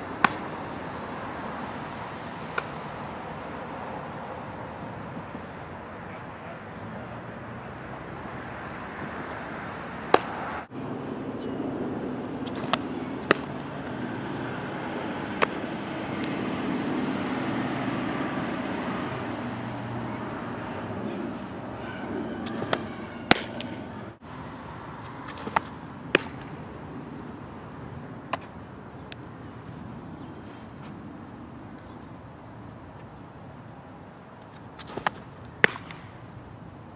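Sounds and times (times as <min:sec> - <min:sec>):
outdoor background noise: 0:00.0 - 0:36.9
ball smacking into mitt: 0:00.2 - 0:00.5, 0:10.1 - 0:10.4, 0:12.4 - 0:14.0, 0:15.3 - 0:16.4, 0:22.4 - 0:23.8, 0:25.3 - 0:26.5, 0:28.3 - 0:28.5, 0:34.8 - 0:36.1.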